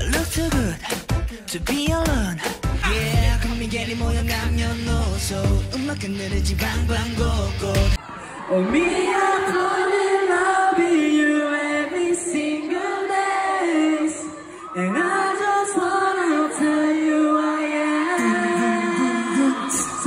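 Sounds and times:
man singing into microphone: 0.0s - 8.0s, 16.2s - 20.0s.

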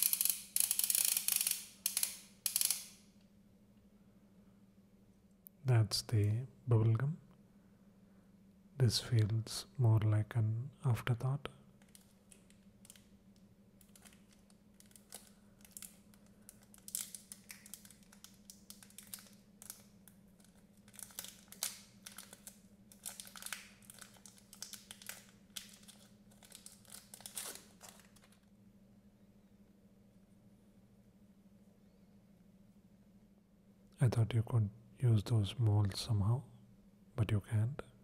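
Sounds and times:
paper wrapper crinkling: 13.8s - 28.5s.

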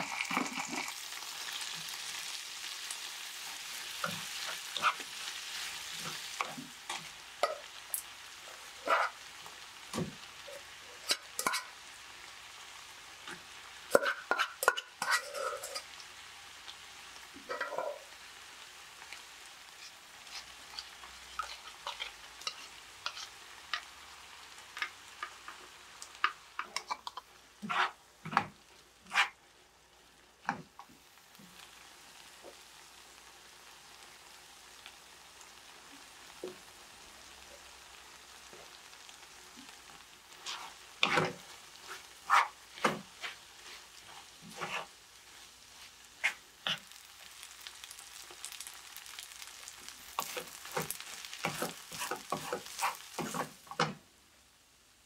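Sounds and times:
rice sizzling in a frying pan: 0.0s - 55.0s
spatula knocking and scraping pan: 4.0s - 5.2s, 5.9s - 7.7s, 9.9s - 10.2s, 11.0s - 11.7s, 13.3s - 15.9s, 17.4s - 18.0s, 26.2s - 29.4s, 40.4s - 44.9s, 50.1s - 54.0s.

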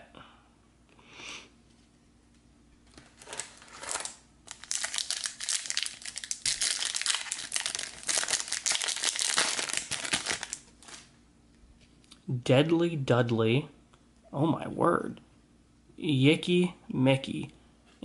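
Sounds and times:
foil wrapper crinkling: 2.9s - 11.1s.

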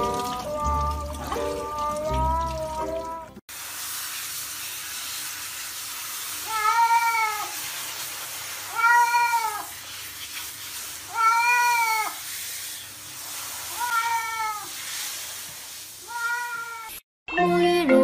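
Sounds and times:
shower water spraying: 0.0s - 17.0s
cat meowing: 6.5s - 7.6s, 8.7s - 9.7s, 11.1s - 12.2s, 13.7s - 14.7s, 16.1s - 17.0s.

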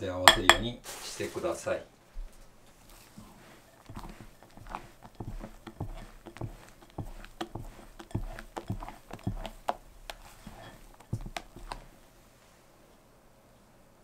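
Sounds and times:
spatula scraping batter in glass bowl: 2.7s - 11.9s.

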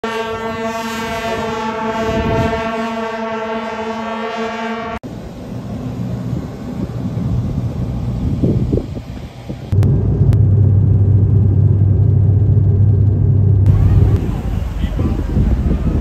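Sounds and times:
brass horns holding a note: 0.0s - 5.0s
low uneven rumble: 5.1s - 16.0s.

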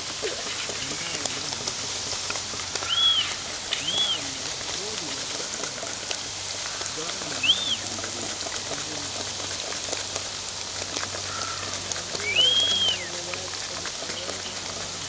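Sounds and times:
banana slices sizzling in hot oil: 0.0s - 15.0s
rising and falling call: 2.8s - 4.4s, 7.2s - 8.1s, 12.1s - 13.2s.

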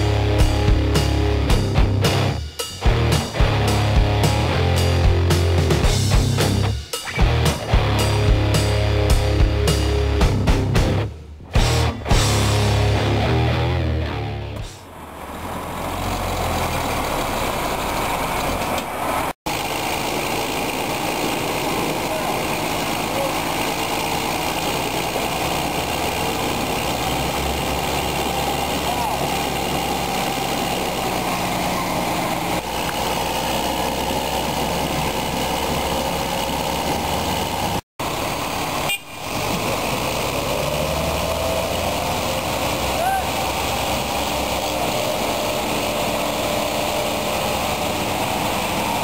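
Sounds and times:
rock music: 0.0s - 14.8s
heavy diesel engines running: 0.0s - 49.0s.

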